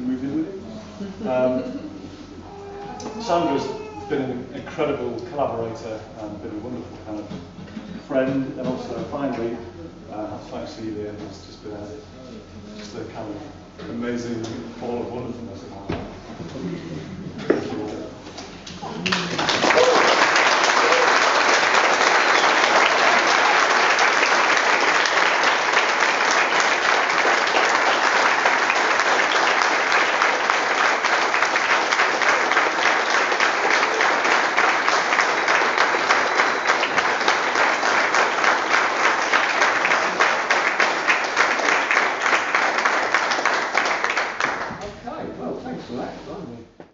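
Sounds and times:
audience applause: 18.8s - 44.8s.

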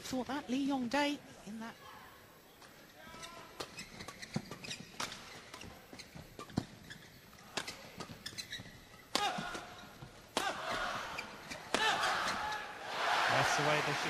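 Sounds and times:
rackets hitting shuttlecock: 3.6s - 6.8s, 9.0s - 10.8s, 11.5s - 12.4s
crowd noise: 9.3s - 14.0s.

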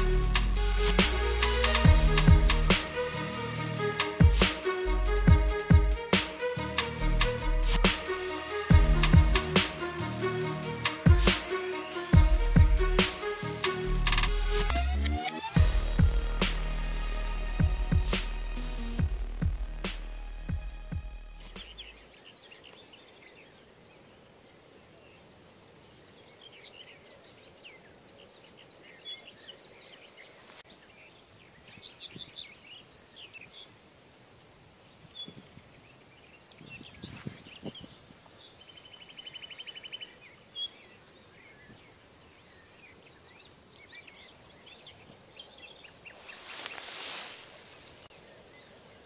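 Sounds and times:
small birds chirping: 21.5s - 49.0s.

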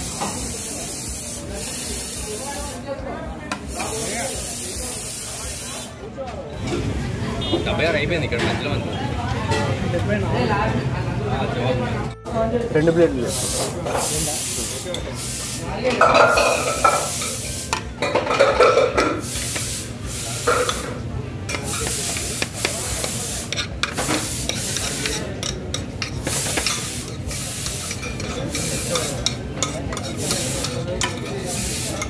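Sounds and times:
kitchen noise hiss: 0.0s - 9.9s, 12.8s - 32.0s
spoon scraping metal pot: 23.5s - 32.0s.

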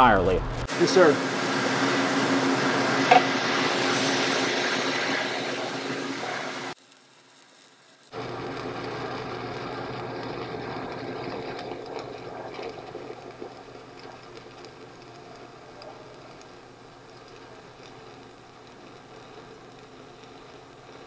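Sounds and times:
welding arc crackling: 0.0s - 21.0s.

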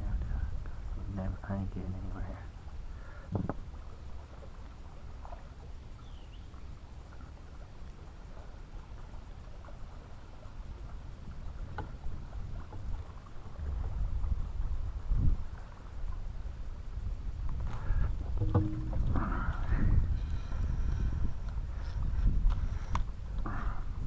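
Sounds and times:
river water rumble: 0.0s - 24.0s
wind: 0.0s - 24.0s
faint knocks on boat: 3.3s - 3.6s, 18.4s - 19.3s.

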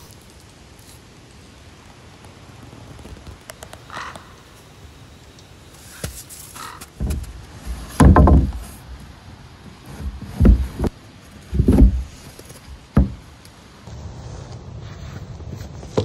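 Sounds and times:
dull thumps on wooden boards: 6.0s - 9.1s, 9.8s - 13.4s.

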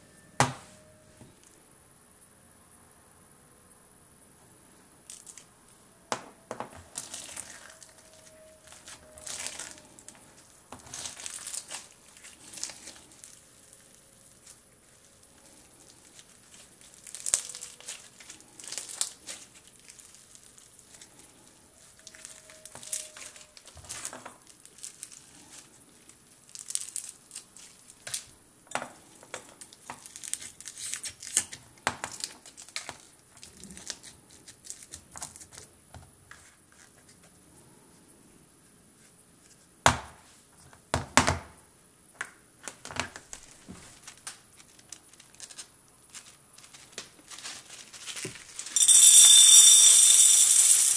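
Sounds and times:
slime crackling and crunching: 10.8s - 21.0s, 26.5s - 27.9s.

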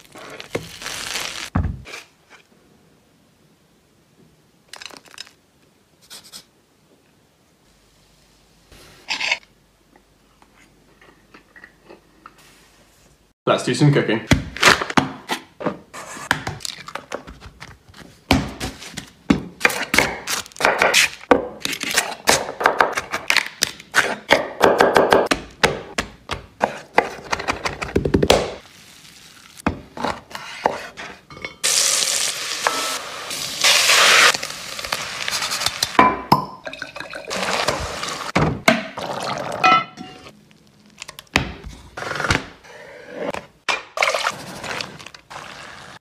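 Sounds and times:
pan sizzling: 28.3s - 29.8s, 31.6s - 36.1s, 37.1s - 38.4s.

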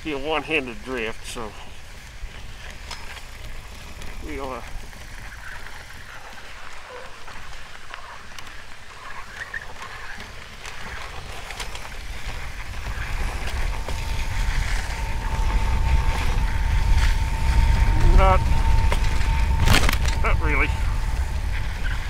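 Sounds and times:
trike rolling over snow: 0.0s - 22.0s
wind rumbling on microphone: 0.0s - 22.0s
steady high whine: 10.8s - 22.0s.

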